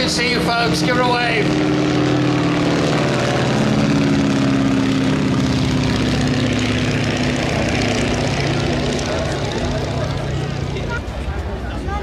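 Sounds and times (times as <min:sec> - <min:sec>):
biplane engine droning: 0:00.0 - 0:12.0.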